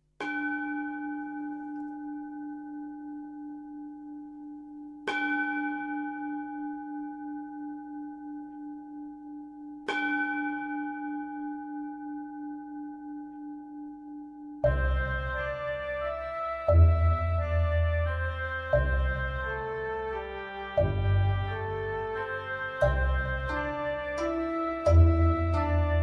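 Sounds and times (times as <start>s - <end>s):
singing bowl ringing: 0.2s - 15.0s.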